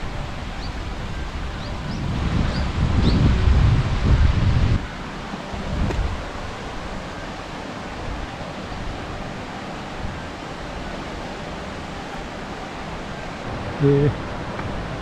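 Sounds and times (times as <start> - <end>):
steady outdoor hiss: 0.0 - 15.0
wind buffeting microphone: 0.2 - 6.6.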